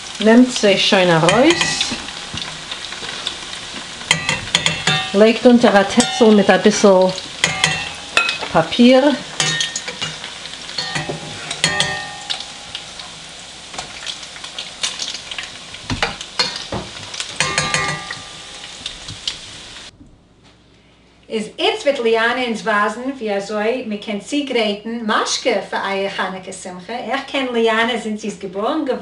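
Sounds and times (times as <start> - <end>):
oil sizzling: 0.0 - 20.0.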